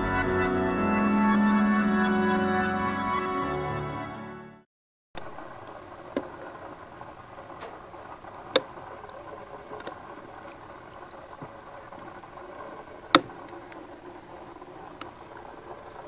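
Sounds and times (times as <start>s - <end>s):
organ music: 0.0s - 4.6s
low background hiss: 5.2s - 16.0s
sharp clicks: 7.5s - 13.9s.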